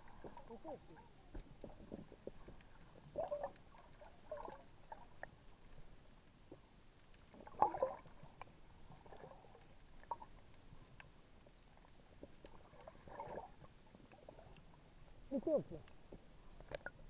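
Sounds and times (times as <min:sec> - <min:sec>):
underwater bubbling and gurgling: 0:00.0 - 0:17.0
underwater clicks: 0:15.8 - 0:17.0.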